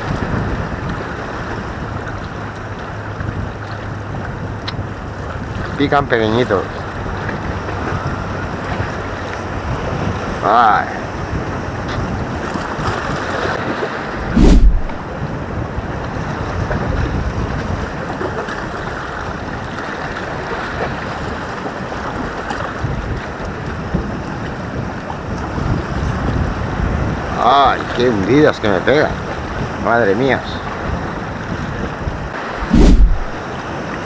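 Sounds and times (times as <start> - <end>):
waves washing against rocks: 0.0 - 34.0
wind buffeting microphone: 0.0 - 34.0
loud sudden thump: 14.4 - 15.0, 32.6 - 33.4.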